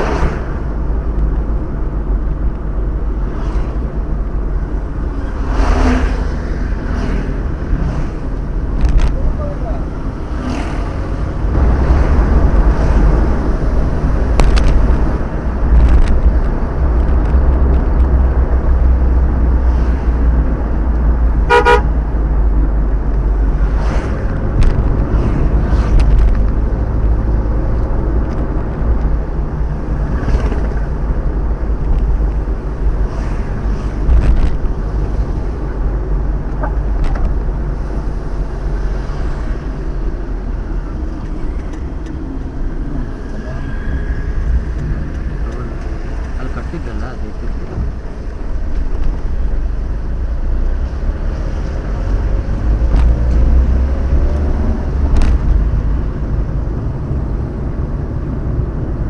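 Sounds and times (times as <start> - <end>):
car road and engine rumble: 0.0 - 59.0
vehicle horn honking: 21.5 - 22.0.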